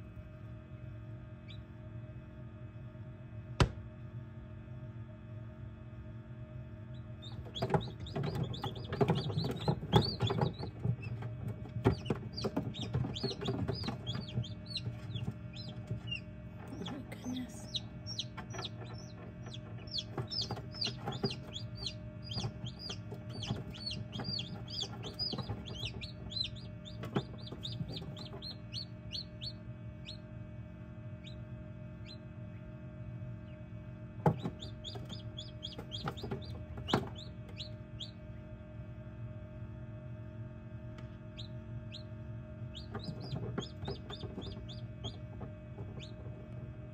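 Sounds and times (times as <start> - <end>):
incubator hum: 0.0 - 46.9
chicks peeping: 1.4 - 1.7, 6.9 - 30.3, 31.1 - 38.4, 41.0 - 46.9
knocks and bumps: 7.4 - 17.4, 18.2 - 28.8, 34.2 - 37.6.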